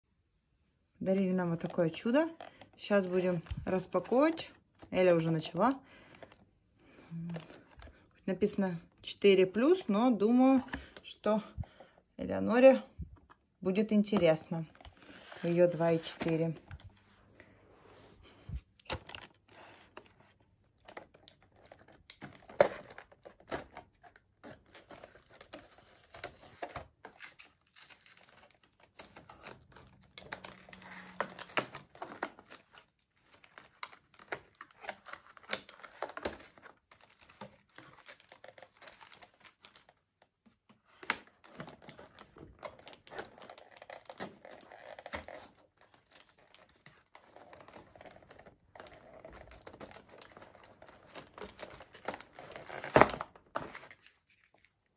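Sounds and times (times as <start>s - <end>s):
plastic and cardboard crinkling: 13.0s - 54.9s.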